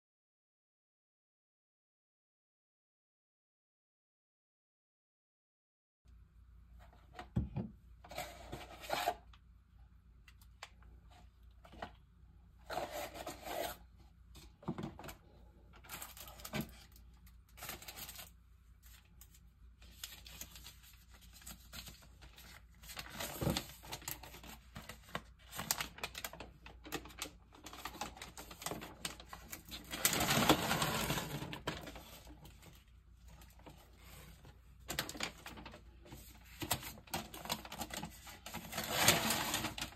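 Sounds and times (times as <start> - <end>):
rustling and scraping of objects: 6.7 - 9.4, 12.6 - 39.9.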